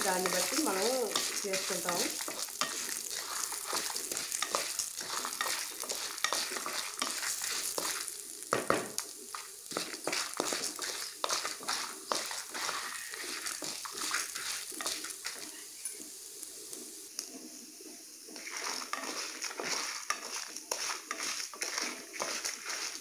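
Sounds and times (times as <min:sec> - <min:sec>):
wooden spatula scraping pan: 0:00.0 - 0:16.0, 0:18.3 - 0:23.0
faint sizzle: 0:00.0 - 0:23.0.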